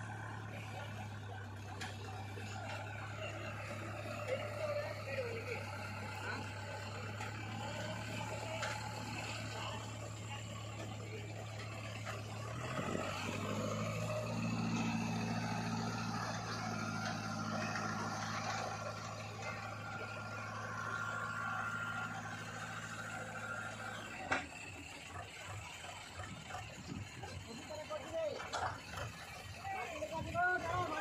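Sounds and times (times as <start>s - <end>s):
tractor diesel engine under load: 0.0s - 31.0s.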